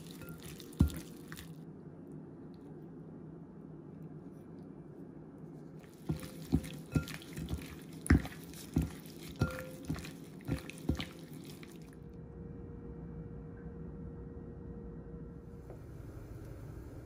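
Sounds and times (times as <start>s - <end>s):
wet squelches of hand mixing: 0.0s - 1.6s, 5.7s - 12.0s.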